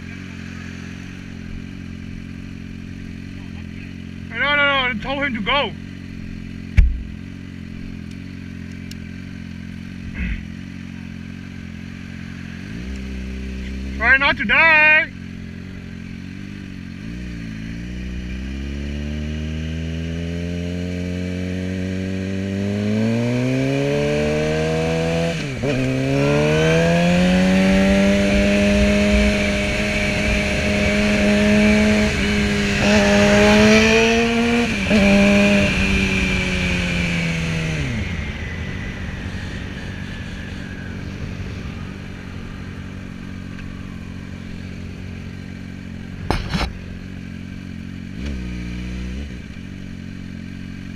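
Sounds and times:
motorcycle engine accelerating: 0:00.0 - 0:50.9
wind rush: 0:28.1 - 0:44.8.

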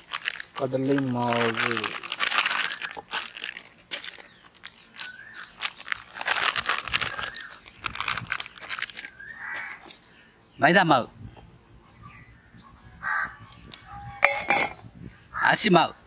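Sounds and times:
plastic packet crinkling: 0:00.0 - 0:09.2.

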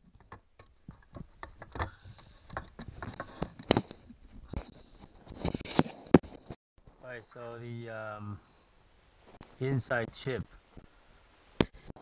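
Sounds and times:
clicks and knocks of handling parts: 0:00.0 - 0:06.6.

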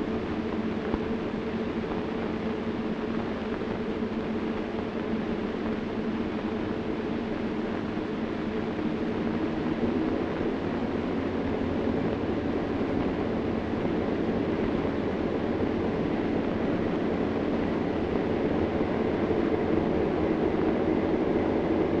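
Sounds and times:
boat engine droning: 0:05.4 - 0:22.0.

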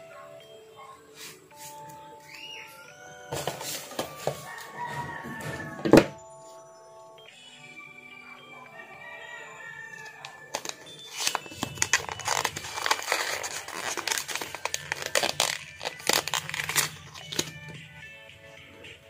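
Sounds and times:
paper packaging rustling: 0:10.2 - 0:17.8
paper ripping: 0:10.5 - 0:17.6.

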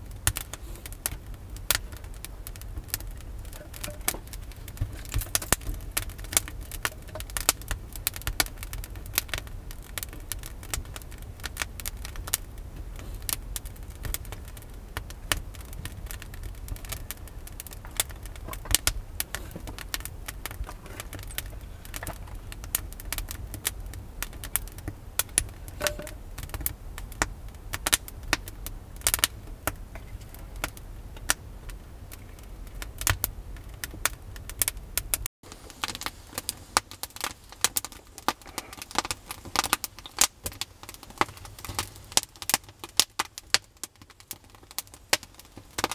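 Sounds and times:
wood fire crackling: 0:00.0 - 0:45.9
firewood knocking: 0:02.6 - 0:08.5, 0:25.8 - 0:26.2.

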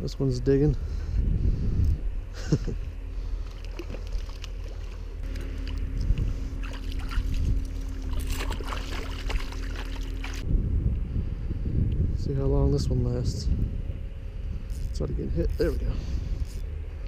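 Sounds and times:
wind rumble on microphone: 0:00.0 - 0:17.0
water splashing and sloshing: 0:03.2 - 0:10.4.

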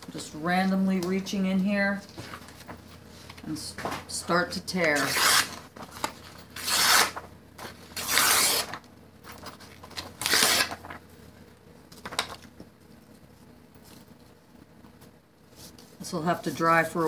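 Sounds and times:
paper being torn by hand: 0:04.9 - 0:07.2, 0:08.0 - 0:08.8, 0:10.2 - 0:10.9.

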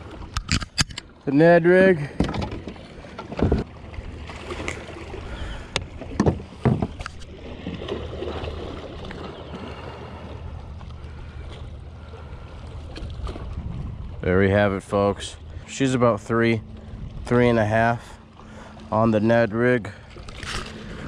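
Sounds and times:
knocks against plastic hull: 0:05.8 - 0:07.0
wind rumble on microphone: 0:12.8 - 0:16.0, 0:16.6 - 0:18.2.

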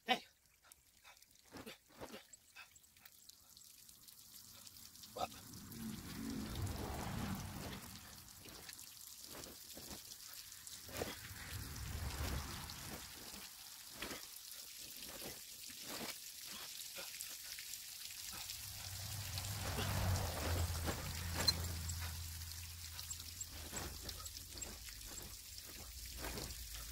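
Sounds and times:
water spattering: 0:00.7 - 0:26.9
plastic tarp rustling and crackling: 0:06.2 - 0:16.8, 0:18.5 - 0:26.9.

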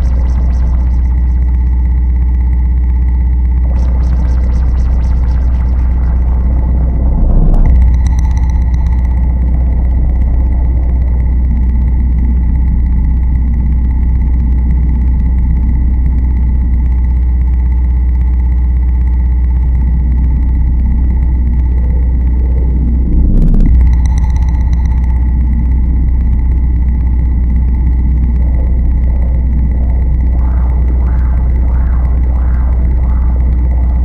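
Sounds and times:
low industrial rumble with hiss: 0:00.0 - 0:34.0
thin steady whining tones: 0:00.0 - 0:34.0
faint held tones: 0:19.7 - 0:34.0.

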